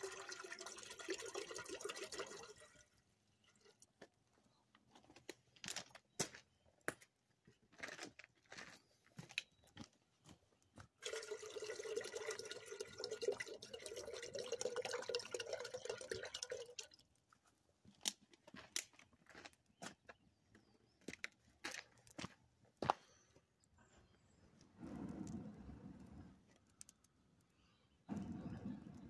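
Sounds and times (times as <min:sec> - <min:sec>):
water pouring into metal pot: 0:00.0 - 0:03.8, 0:11.0 - 0:17.1
campfire crackling and popping: 0:24.8 - 0:29.0.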